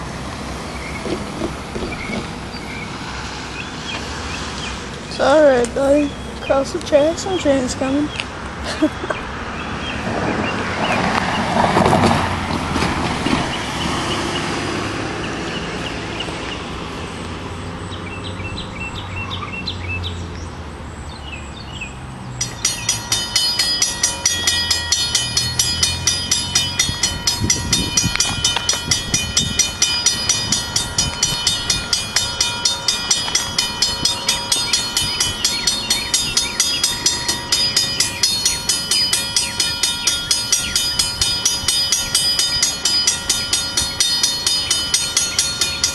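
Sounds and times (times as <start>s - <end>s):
railroad crossing bell ringing: 0.0s - 8.2s, 22.3s - 45.9s
low rumble of approaching train: 0.0s - 20.9s, 21.6s - 45.9s.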